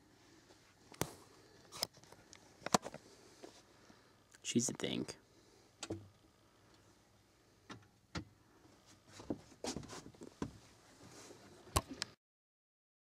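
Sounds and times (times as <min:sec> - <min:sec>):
camera handling knocks and rustles: 0:01.7 - 0:03.0.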